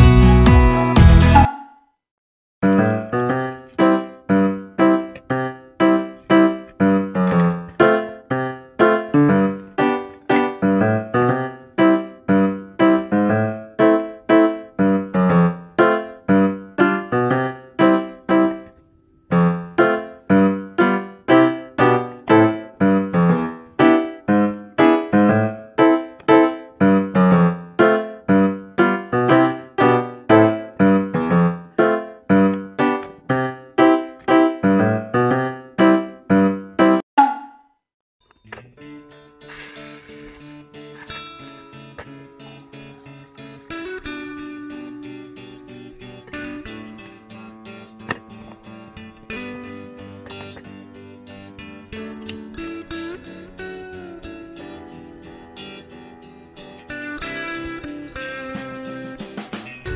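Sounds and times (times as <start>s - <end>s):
light piano-like keyboard tune: 2.6s - 37.5s, 38.5s - 59.9s.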